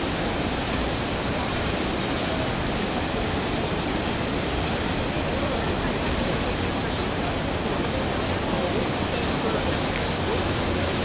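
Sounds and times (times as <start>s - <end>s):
fountain water splashing: 0.0s - 11.0s.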